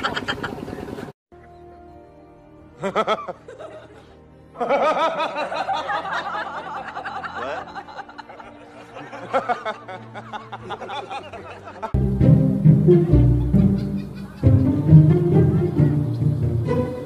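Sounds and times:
background music: 1.3 - 17.0
man laughing: 2.8 - 4.0, 4.6 - 12.0, 13.3 - 15.8.

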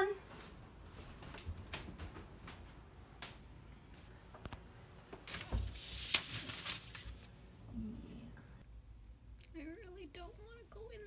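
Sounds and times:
rustling shuffle: 0.0 - 2.9, 3.9 - 7.4.

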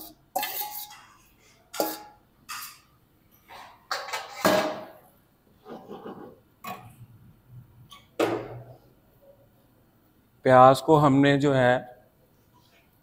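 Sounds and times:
spatula scraping pot: 0.0 - 2.9, 5.6 - 6.4.

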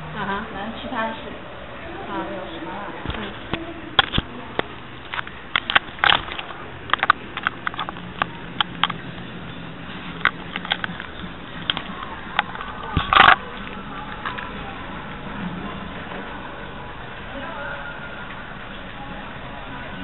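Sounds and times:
recording hiss and hum: 0.0 - 20.0
sharp clicks and light knocks: 3.0 - 9.3, 9.9 - 14.6.

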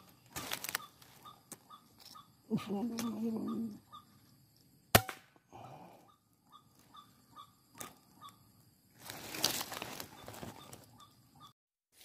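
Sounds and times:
faint repeated chirping: 0.0 - 4.9, 5.5 - 9.0, 9.7 - 11.6
rustling and handling noise: 9.0 - 10.9.

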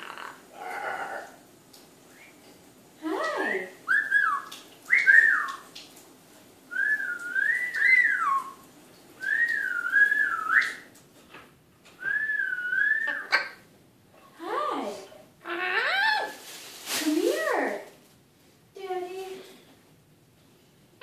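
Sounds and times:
parrot whistling: 3.9 - 5.6, 6.7 - 8.6, 9.2 - 10.8, 12.0 - 13.6.

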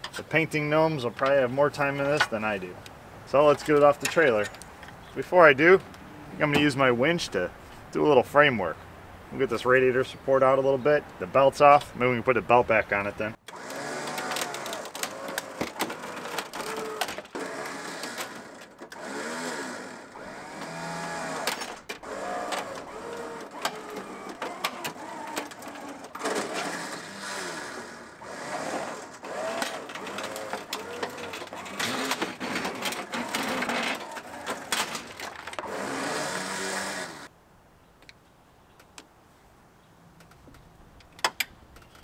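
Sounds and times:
winch motor straining: 13.4 - 37.3
sharp clicks and cracks: 13.5 - 19.2.

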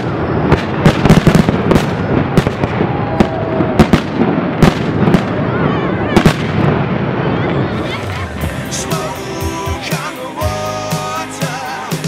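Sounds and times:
falling firework whistle: 0.0 - 5.3
fireworks rumble and crackle: 0.0 - 12.0.

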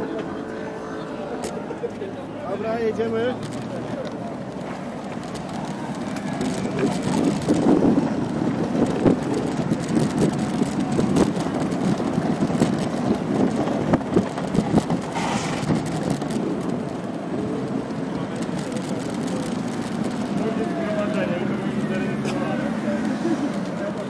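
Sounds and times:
small wheels rumbling on asphalt: 0.0 - 24.0
wheels knocking and rattling: 1.4 - 24.0
wind on microphone: 5.7 - 18.4.

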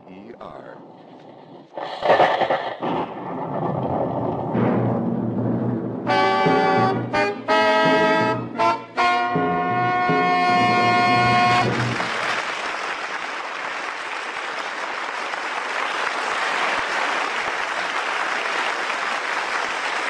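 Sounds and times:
orchestral brass chord: 6.1 - 12.3
audience applause: 10.6 - 20.0.

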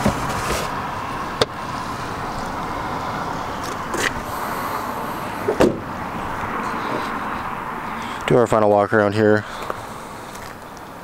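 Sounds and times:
dull knocks: 5.5 - 5.9.

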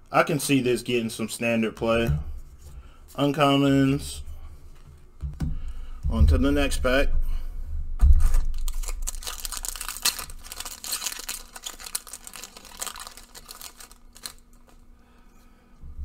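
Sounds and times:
dull thump: 8.0 - 8.5
foil wrapper crinkling: 8.1 - 14.9.

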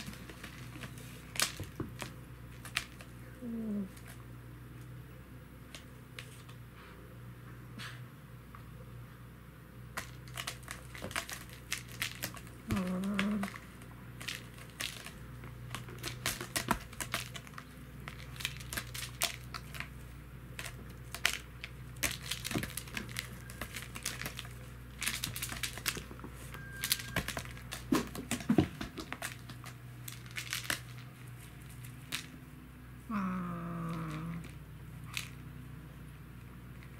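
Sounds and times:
cat low call: 3.3 - 4.0, 12.7 - 13.6, 33.1 - 34.6.

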